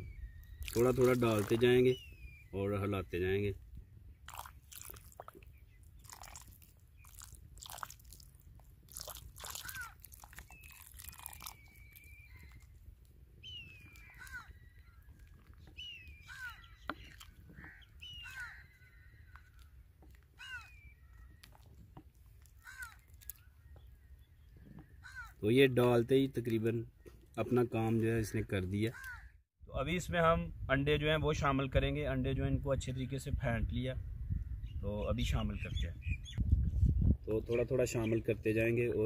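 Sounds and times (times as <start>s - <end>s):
bird chirping: 0.0s - 3.1s, 9.7s - 21.9s, 34.3s - 36.5s.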